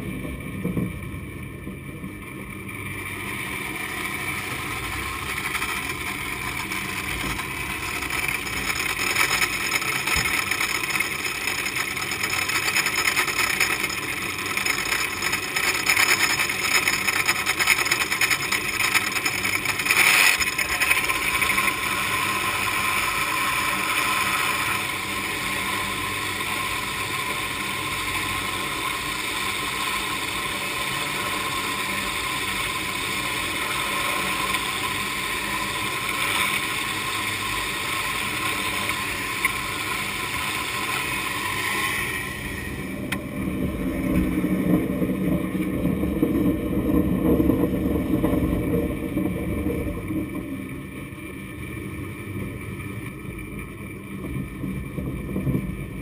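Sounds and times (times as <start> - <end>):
low rumble of cable and grip: 0.0 - 25.2, 41.1 - 56.0
cable running with metallic hiss: 2.8 - 43.2.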